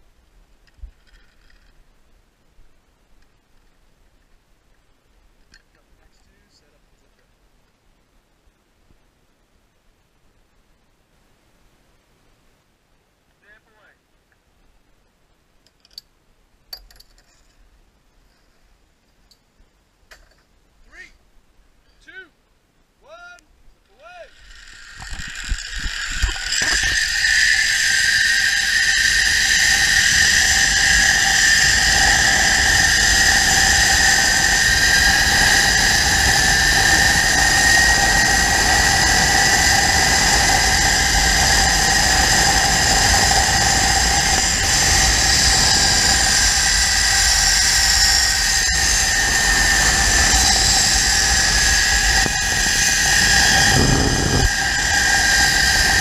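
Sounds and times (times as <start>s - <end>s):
pulley wheels whining on cable: 0.8s - 1.8s, 24.3s - 56.0s
wind rushing on microphone: 25.0s - 56.0s.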